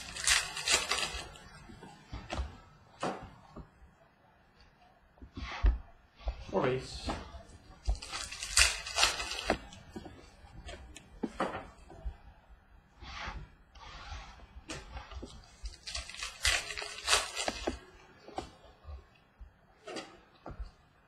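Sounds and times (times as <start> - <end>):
cards swishing: 0.0 - 1.6, 7.8 - 9.8, 15.6 - 17.8.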